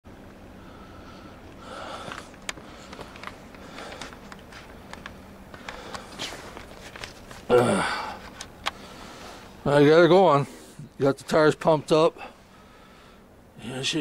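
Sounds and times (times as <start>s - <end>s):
breathing through the nose: 0.6s - 4.2s.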